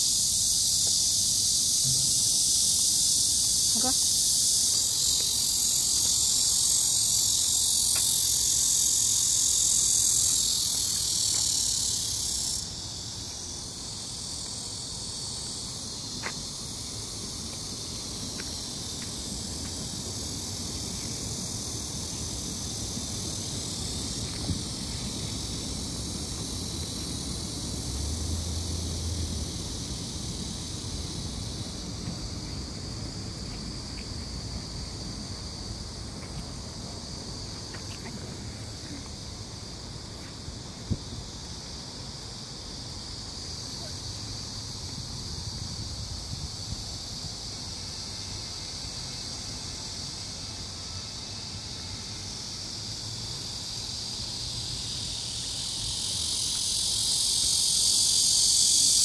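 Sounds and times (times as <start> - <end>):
insects singing shrilly: 0.0 - 19.5, 49.9 - 59.0.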